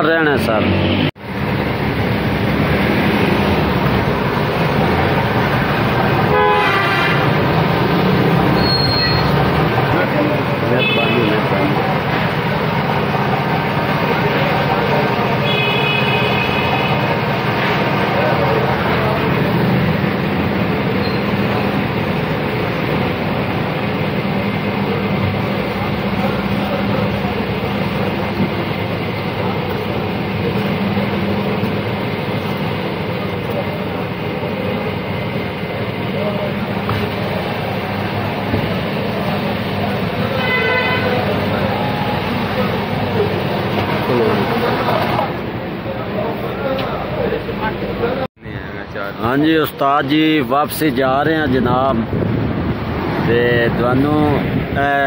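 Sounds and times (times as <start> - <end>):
engines and traffic: 0.0 - 55.0
vehicle horn toot: 6.2 - 7.4, 10.6 - 11.5, 15.4 - 17.2, 40.3 - 42.0.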